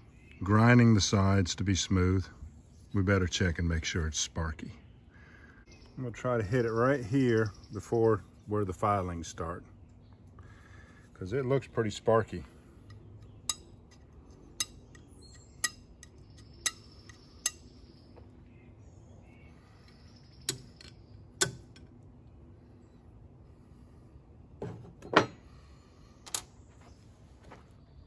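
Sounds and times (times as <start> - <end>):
flint striking a steel file: 12.9 - 17.7, 20.5 - 21.9.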